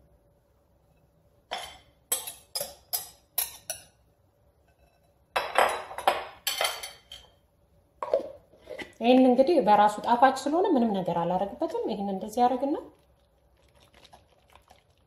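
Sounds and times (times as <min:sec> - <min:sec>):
utensils clinking on glass bowl: 0:01.5 - 0:04.0, 0:04.7 - 0:07.3.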